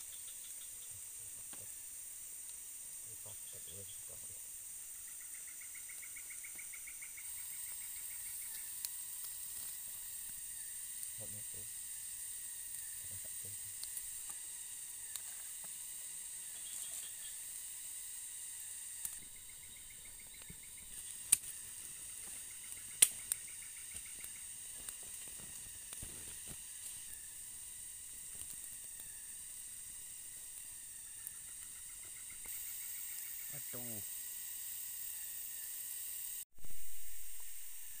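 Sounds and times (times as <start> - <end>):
insects droning: 0.0 - 38.0
chirping trills: 3.2 - 9.4, 18.5 - 25.8, 27.0 - 34.0
sharp clicks: 19.0 - 26.6.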